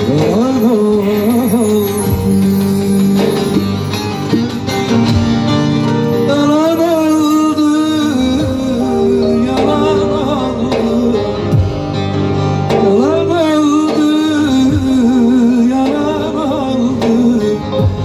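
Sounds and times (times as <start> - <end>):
man singing wavering notes: 0.0 - 3.9, 6.1 - 11.6.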